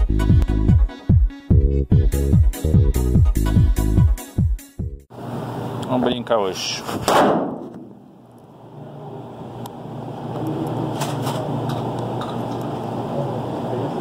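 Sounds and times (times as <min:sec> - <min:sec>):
shooting range rumble: 0:05.2 - 0:14.0.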